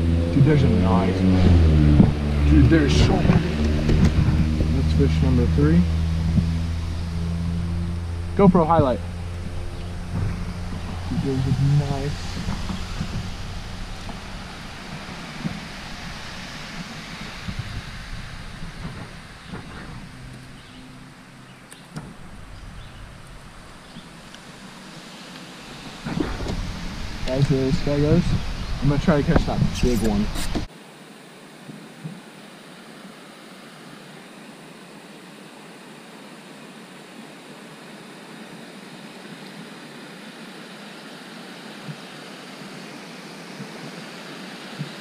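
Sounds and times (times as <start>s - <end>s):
creek rushing: 0.0s - 30.7s.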